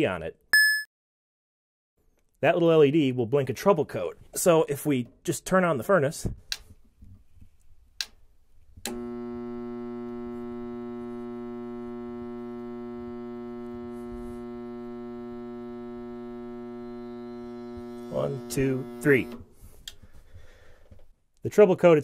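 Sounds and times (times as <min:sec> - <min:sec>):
click: 0:06.5 - 0:06.7, 0:08.8 - 0:09.0
loud electrical buzz: 0:08.9 - 0:19.4.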